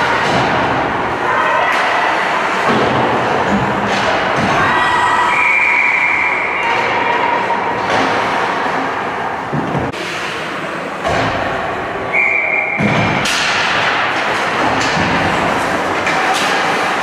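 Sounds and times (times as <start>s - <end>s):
thumps against rink boards: 2.6s - 4.8s, 9.5s - 10.1s, 12.8s - 17.0s
whistle blast: 5.3s - 6.6s, 12.1s - 12.9s
skates and sticks on ice: 12.8s - 17.0s.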